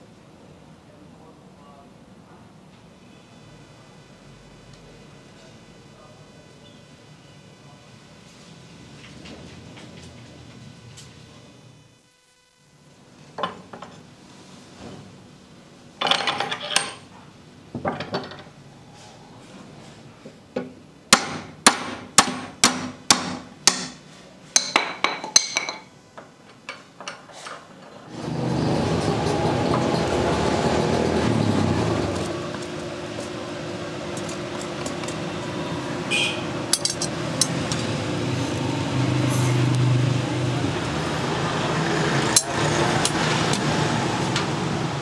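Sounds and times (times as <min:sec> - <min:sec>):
hammer striking metal: 0:21.1 - 0:24.0.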